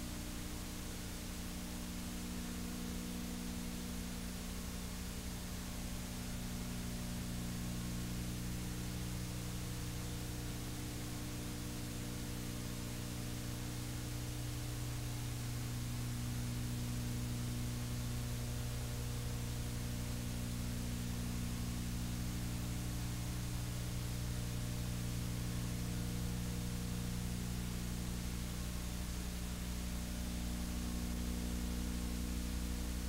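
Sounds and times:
constant hiss: 0.0 - 33.0
electrical hum: 0.0 - 33.0.

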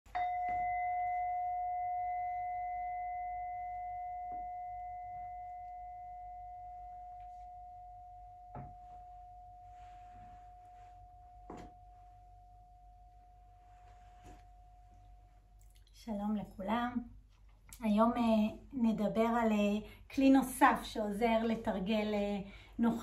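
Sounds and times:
singing bowl ringing: 0.1 - 15.6.

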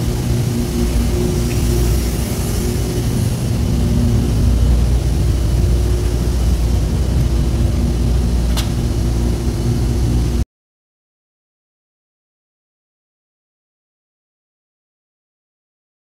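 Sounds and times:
low mechanical rumble: 0.0 - 10.4.

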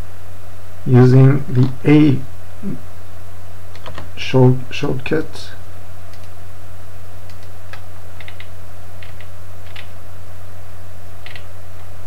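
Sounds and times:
steady low hum: 0.0 - 12.0
keyboard keys clicking: 3.8 - 4.1, 7.3 - 9.9, 11.2 - 11.5.

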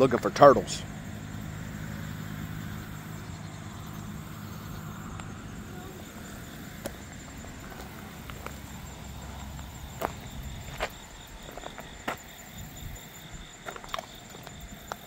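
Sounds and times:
insects droning: 0.0 - 15.0
footsteps on rocky creek bed: 6.1 - 15.0.

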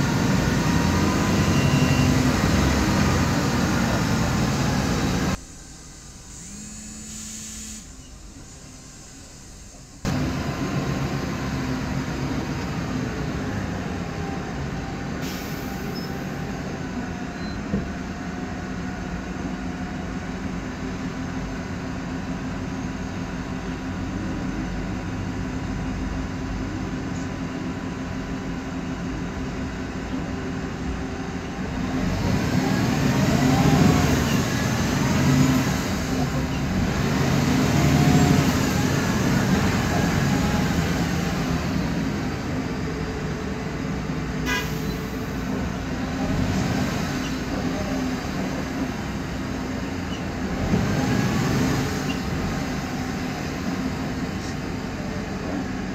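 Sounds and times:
bus cabin drone: 0.0 - 55.9
gearbox whine: 5.2 - 10.5.

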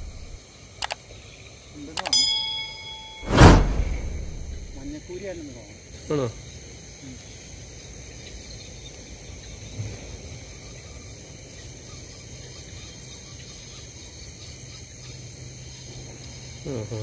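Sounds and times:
crickets and insects trilling: 0.0 - 3.1, 4.8 - 17.0.

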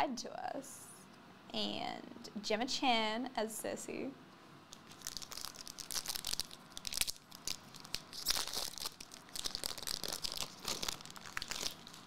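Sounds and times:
foil wrapper crinkling: 4.7 - 12.0.

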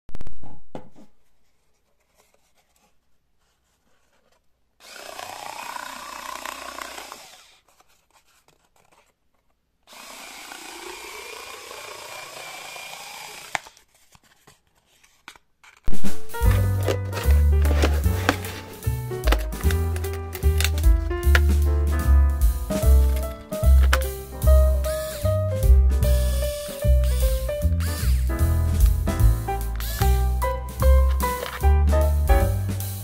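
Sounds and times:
cutting through cardboard: 1.8 - 21.7, 22.7 - 25.3, 26.0 - 29.0, 29.6 - 32.2
cordless screwdriver motor whine: 4.8 - 7.6, 9.9 - 13.8, 26.1 - 28.3, 29.8 - 30.4.

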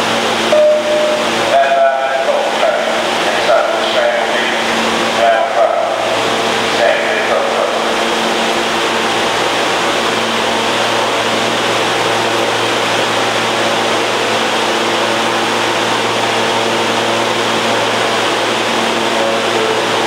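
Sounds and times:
subway train air conditioning hum: 0.0 - 20.0.

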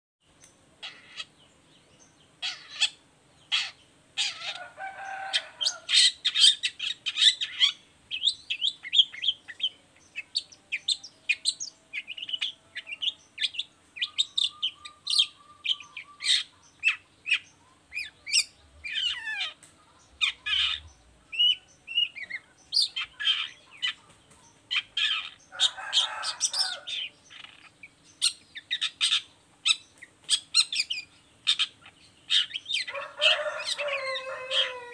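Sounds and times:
bird singing chirps and trills: 0.3 - 34.9
harsh rasping bird call: 30.4 - 34.9.

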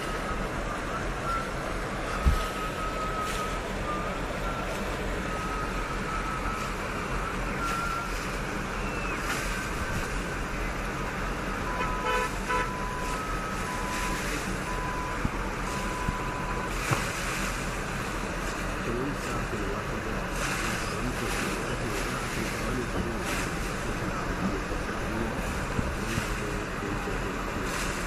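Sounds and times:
car horns: 11.4 - 17.6.

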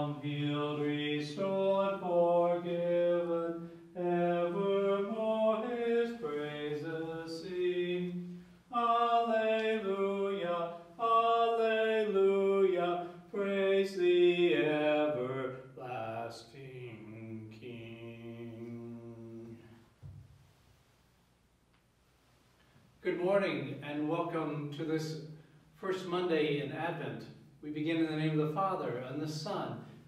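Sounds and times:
man singing a hymn: 0.0 - 19.7, 25.8 - 29.9.

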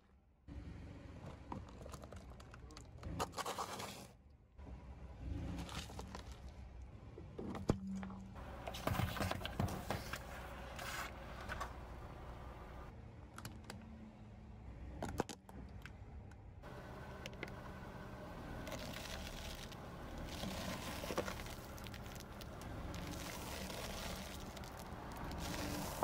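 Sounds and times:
tyre crushing plastic and pods: 18.6 - 26.0.

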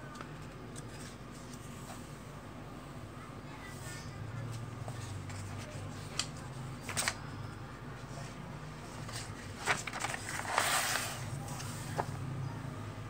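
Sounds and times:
paper rustles: 0.1 - 2.0, 4.5 - 7.2, 8.9 - 12.2
magazine pages turning: 4.9 - 7.2, 8.9 - 12.2.

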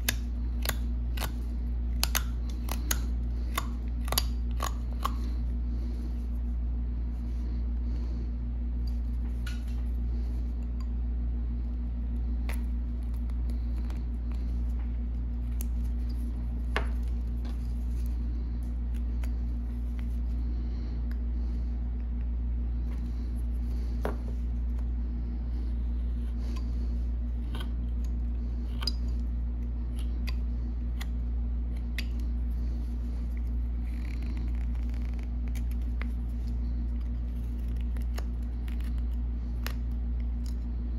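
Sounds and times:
steady low hum: 0.0 - 40.9.

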